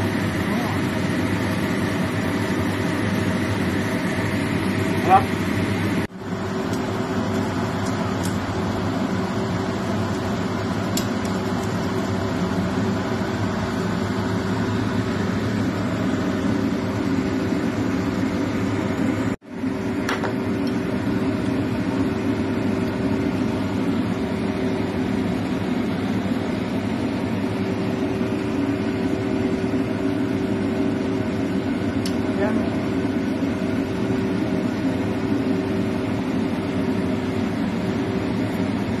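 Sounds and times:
steady machine hum: 0.0 - 39.0.

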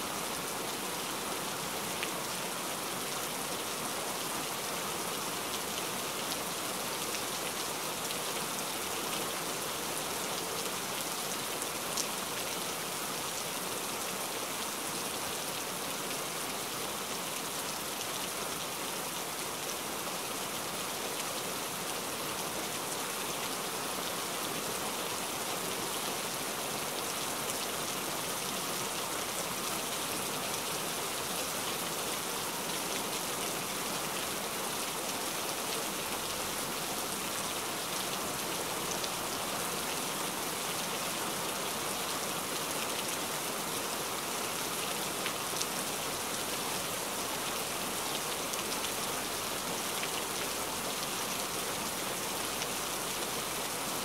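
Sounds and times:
steady rainfall: 0.0 - 54.0.

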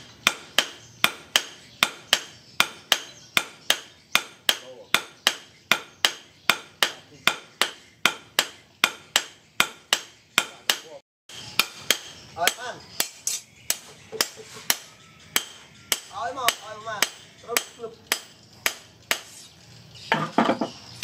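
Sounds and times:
hammer blows on metal anvil: 0.0 - 19.4.

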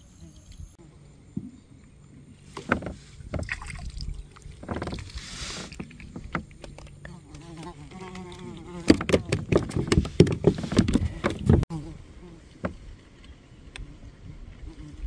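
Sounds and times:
plastic kayak clicks and knocks: 8.8 - 11.6.

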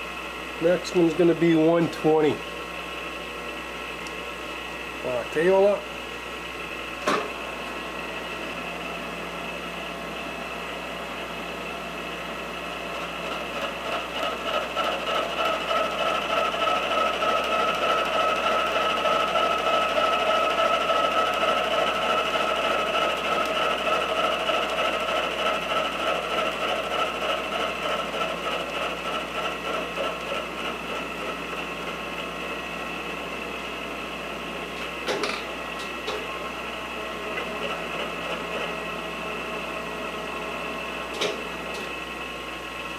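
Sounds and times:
milling machine cutting steel: 12.1 - 42.9.

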